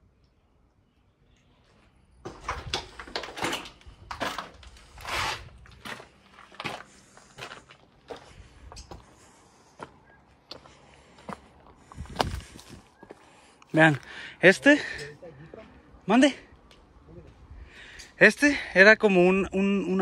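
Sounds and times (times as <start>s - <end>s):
footsteps crunching and scuffing: 1.6s - 14.1s.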